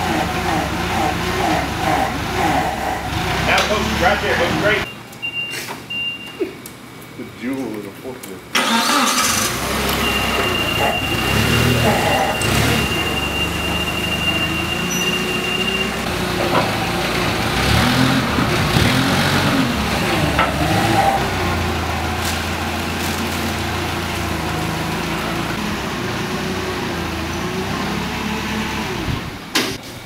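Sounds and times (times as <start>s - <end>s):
forklift engine running: 0.0s - 6.1s, 8.6s - 29.9s.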